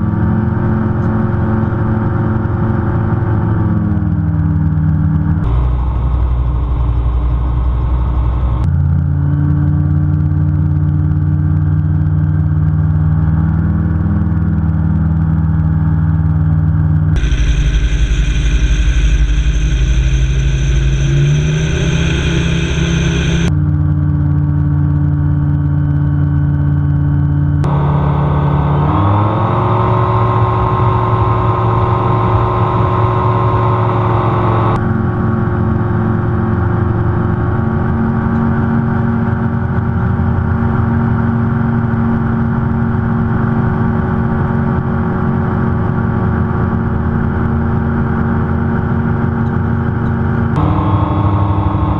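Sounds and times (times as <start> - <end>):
aircraft engine drone in cockpit: 0.0 - 51.9.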